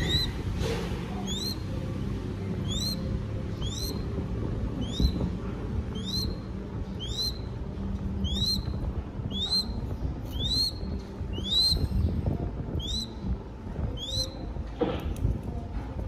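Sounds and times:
chick calling: 0.0 - 0.4, 1.2 - 1.6, 2.6 - 4.0, 4.8 - 5.2, 5.9 - 6.4, 7.0 - 7.4, 8.2 - 8.7, 9.3 - 11.8, 12.8 - 13.1, 14.0 - 14.3.

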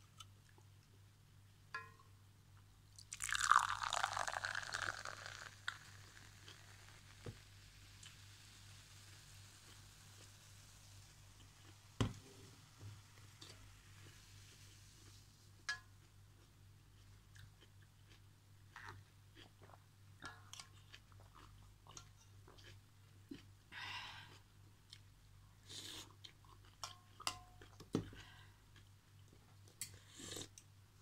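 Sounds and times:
soft chewing: 15.0 - 30.7
slurping from a spoon: 29.9 - 30.6.

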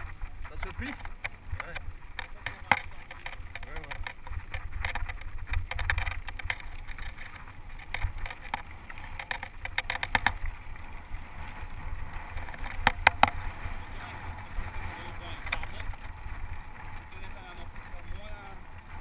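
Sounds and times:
sharp clacks: 0.0 - 10.5, 15.3 - 16.0
bike rattling and clicking: 0.0 - 19.0
wind rumble on microphone: 0.0 - 19.0.

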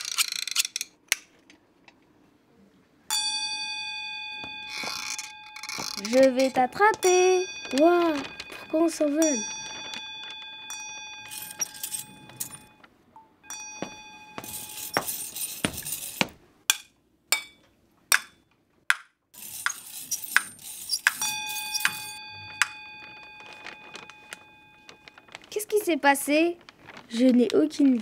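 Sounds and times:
bell-like ringing tone: 3.1 - 16.1, 20.6 - 25.4
metallic clinking and jangling: 4.7 - 12.8, 19.4 - 25.0.

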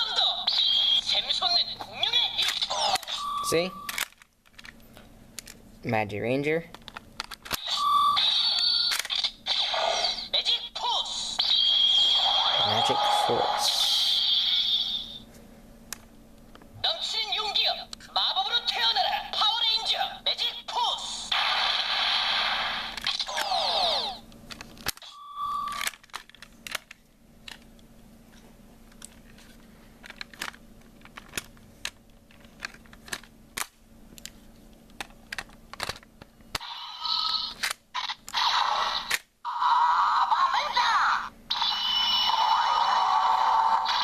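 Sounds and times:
toy electronic sound effects and voice: 0.0 - 3.7, 7.6 - 15.2, 16.8 - 21.3, 22.6 - 24.2, 36.6 - 44.0
plastic clicks from handling a toy: 3.9 - 5.6, 6.7 - 7.6, 25.7 - 27.9, 28.9 - 36.7.

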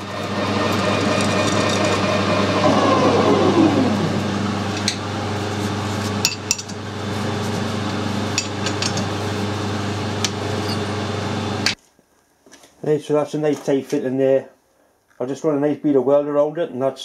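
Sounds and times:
metal lathe humming: 0.0 - 11.8.

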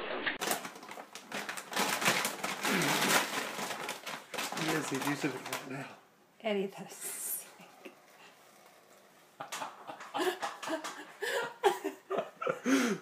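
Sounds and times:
person laughing: 9.4 - 13.0.

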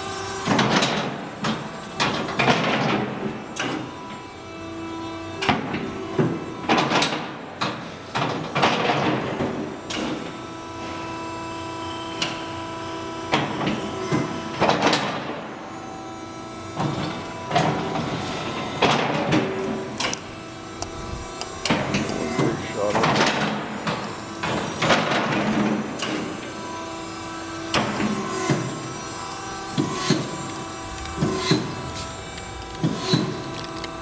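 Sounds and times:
machine hum: 9.4 - 34.0
mechanical swishes and clunks: 27.8 - 34.0.

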